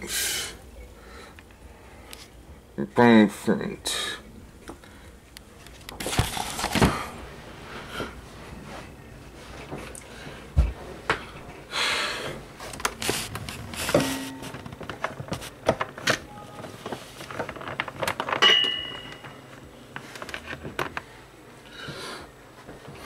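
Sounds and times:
cables and objects being moved: 12.6s - 21.1s
short ringing clink: 18.4s - 19.3s.

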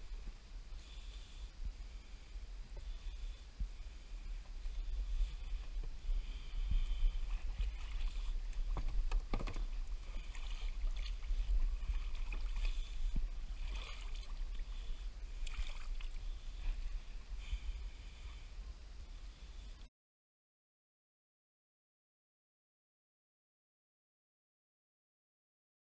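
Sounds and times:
steady low rumble: 0.0s - 19.9s
water sloshing and dripping: 6.8s - 16.3s
soft knocks on boat: 8.7s - 9.8s.

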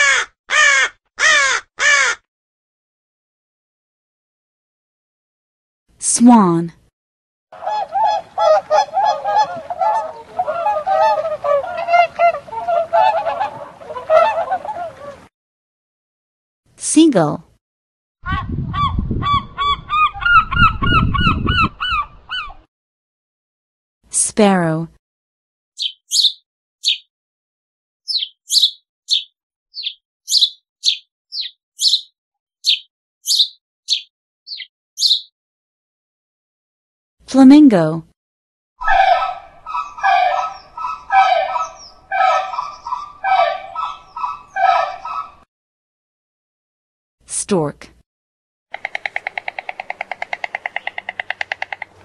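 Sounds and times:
swans honking: 7.6s - 15.3s, 38.8s - 45.4s
sparrow chirping: 25.8s - 27.1s, 28.1s - 35.3s, 39.6s - 45.4s.

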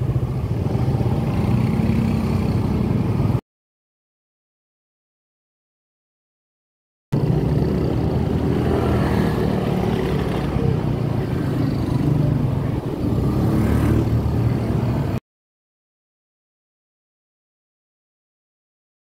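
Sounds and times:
scooter engine and road noise: 0.0s - 3.4s, 7.2s - 15.2s.

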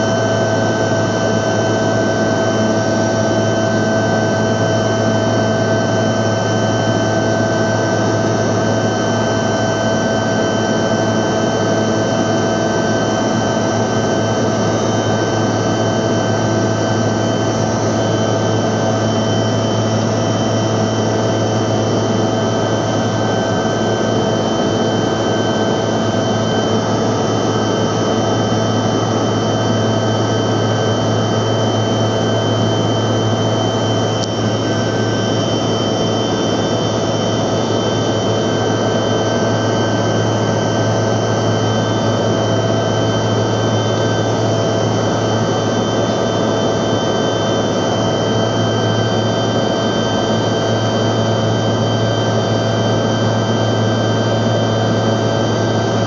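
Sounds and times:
jet cabin engine noise: 0.0s - 56.0s
steady whining tones: 13.2s - 38.9s.

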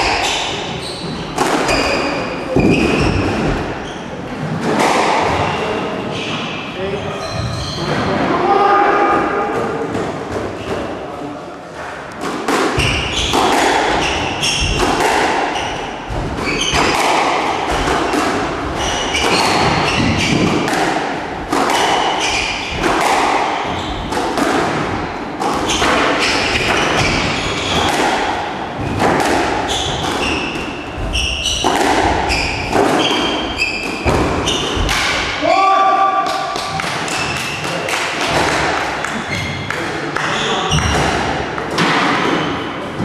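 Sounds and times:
shoes squeaking on wooden floor: 0.1s - 4.1s, 5.4s - 8.2s, 12.8s - 17.2s, 18.7s - 20.7s, 23.6s - 24.1s, 25.0s - 28.0s, 29.6s - 35.0s, 39.1s - 41.0s
squash ball struck by rackets: 1.4s - 3.7s, 12.2s - 35.4s.

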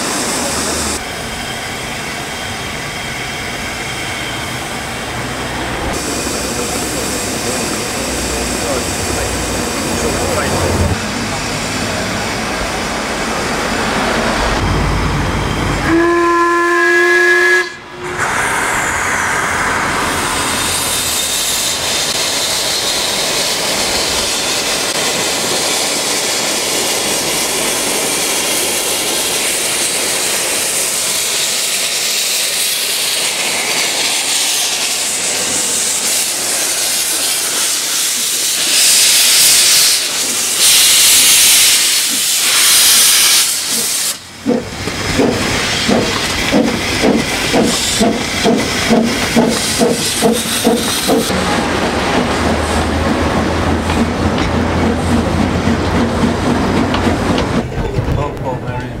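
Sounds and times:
steam venting hiss: 5.9s - 10.9s, 18.1s - 51.3s
steam locomotive whistle: 15.8s - 18.6s.

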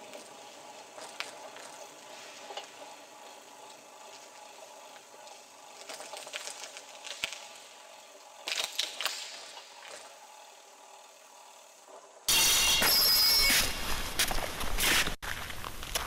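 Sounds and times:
faint clicks and crackles: 0.0s - 12.2s.

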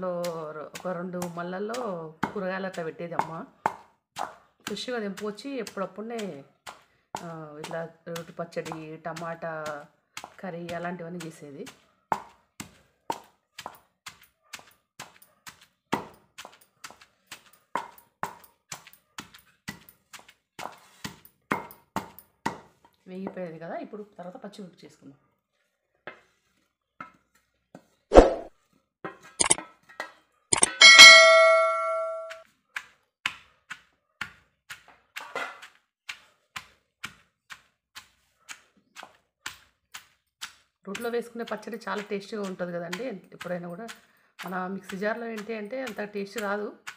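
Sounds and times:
pestle pounding in stone mortar: 0.2s - 22.8s, 30.6s - 46.9s
metal ringing: 30.6s - 32.3s.

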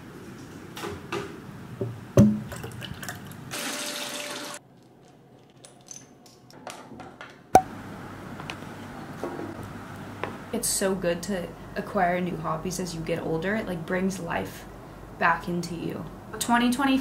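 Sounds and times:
running tap water: 2.5s - 4.6s.

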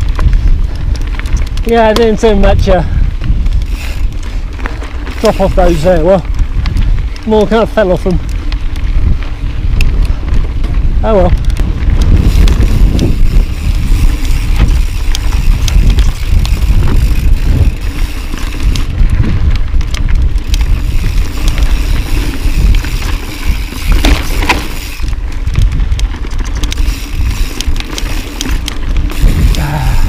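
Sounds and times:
wind and tyre noise: 0.0s - 30.0s
bike knocks and rattles: 3.3s - 30.0s.

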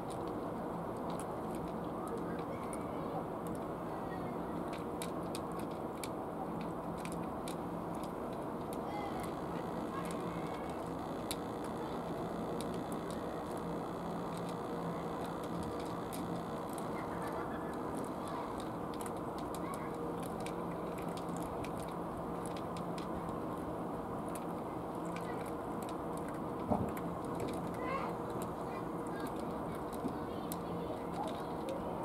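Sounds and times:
cats chewing clicks: 0.0s - 3.7s, 4.4s - 32.0s
faint low hum: 0.0s - 32.0s.

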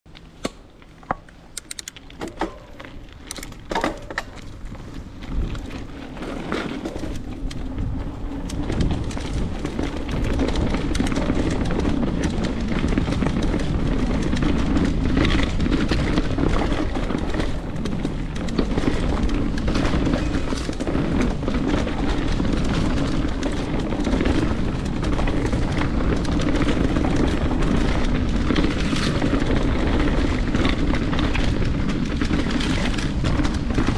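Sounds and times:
sharp clicks and knocks: 0.1s - 4.5s
bike trail rumble: 0.1s - 33.9s
wind buffeting microphone: 3.1s - 33.9s.

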